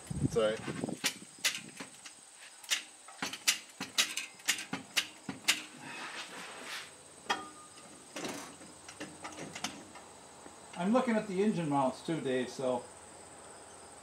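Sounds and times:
sharp clicks and knocks: 0.6 - 5.8, 7.2 - 10.9.

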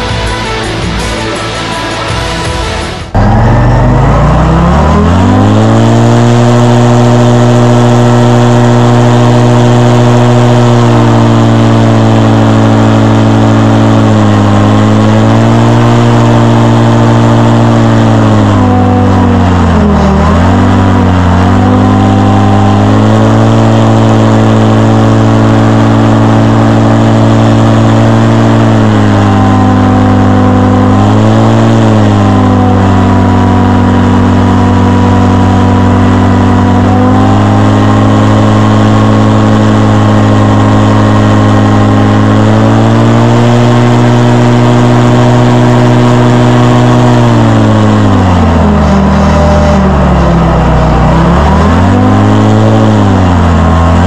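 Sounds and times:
airboat engine and propeller running: 0.0 - 54.0.

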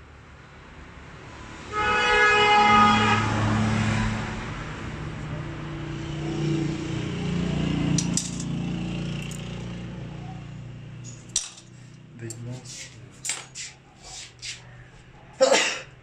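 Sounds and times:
horn blast: 1.7 - 3.6
vehicle engine passing: 2.6 - 15.4
sharp metallic clicks: 8.0 - 8.5.

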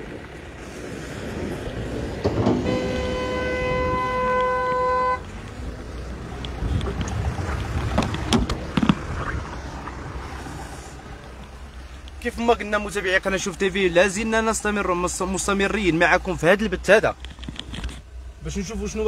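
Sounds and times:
vehicle horn long note: 2.6 - 5.2.

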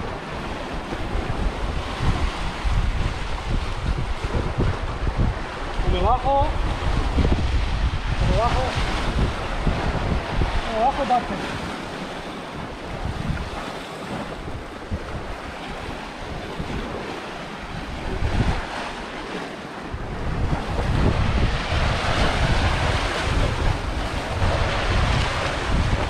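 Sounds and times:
surf washing against rocks: 0.0 - 26.0
wind buffeting microphone: 0.0 - 26.0.

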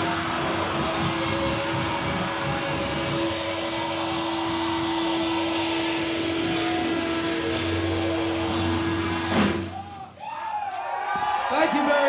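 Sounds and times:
electric guitar feedback drone: 0.0 - 9.7.

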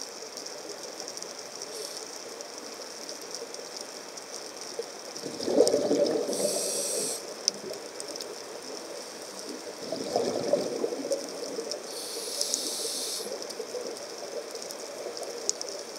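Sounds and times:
exhaled bubbles underwater: 5.0 - 15.9
hissing regulator inhalation: 6.1 - 7.4, 11.8 - 13.5.

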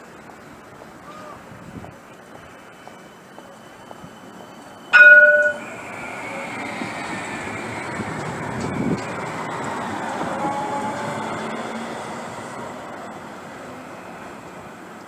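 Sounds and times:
tram rolling noise: 0.0 - 15.0
tram warning horn: 5.0 - 12.4.

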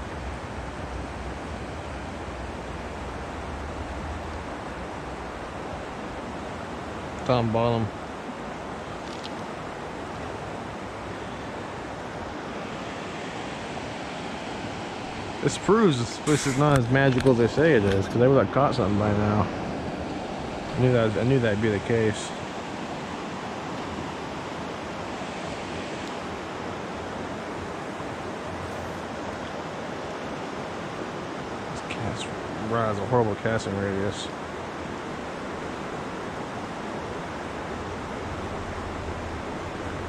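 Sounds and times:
river flowing: 0.0 - 40.0.

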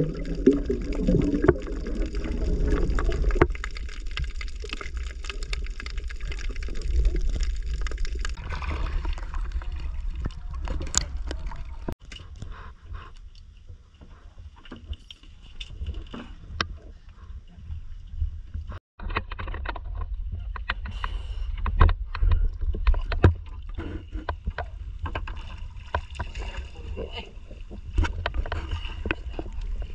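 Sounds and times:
water splashes: 0.0 - 12.0, 23.2 - 29.9
low rumble of wind and water: 0.0 - 29.9.

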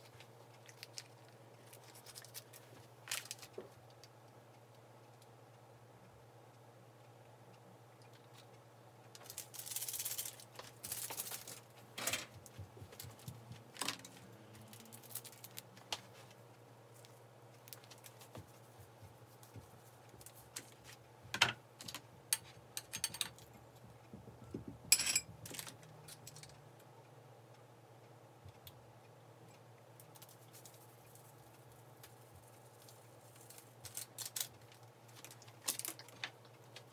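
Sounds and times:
low steady hum: 0.0 - 36.9
plastic sachets crinkling: 0.6 - 3.6, 9.2 - 11.7, 14.7 - 16.0, 32.8 - 36.4.

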